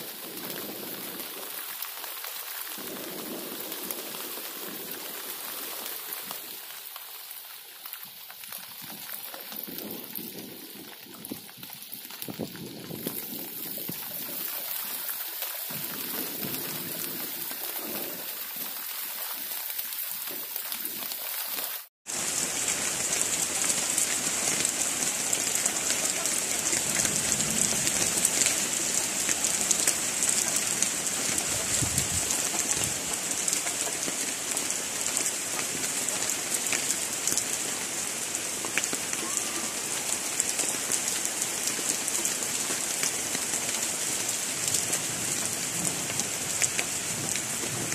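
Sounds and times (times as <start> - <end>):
heavy rain pouring: 0.0 - 47.9.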